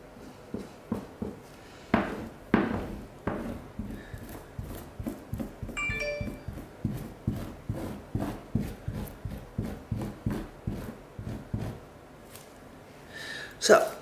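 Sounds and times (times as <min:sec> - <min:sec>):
gloved hand rubbing grout on tiles: 0:02.1 - 0:05.8, 0:06.5 - 0:11.8
brief ringing tone: 0:05.8 - 0:06.5.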